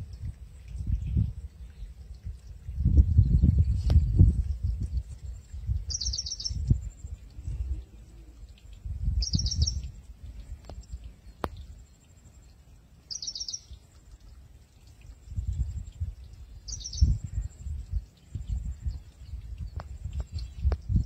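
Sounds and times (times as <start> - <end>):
bird chirping: 5.8 - 10.0, 10.8 - 14.3, 16.2 - 21.0.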